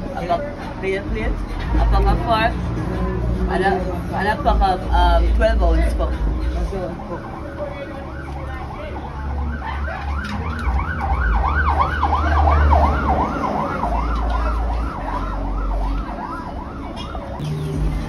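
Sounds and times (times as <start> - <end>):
siren yelping: 6.6 - 17.4.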